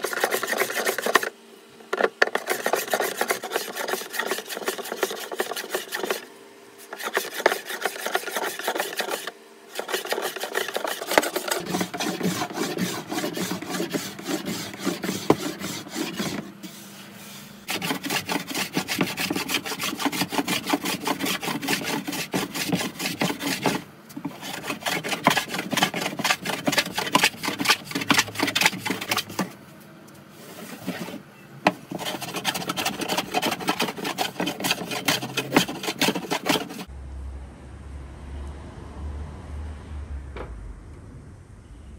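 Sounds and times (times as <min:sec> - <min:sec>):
hand plane shaving wood: 0:00.0 - 0:01.3, 0:02.0 - 0:16.6, 0:17.7 - 0:29.5, 0:31.9 - 0:36.9.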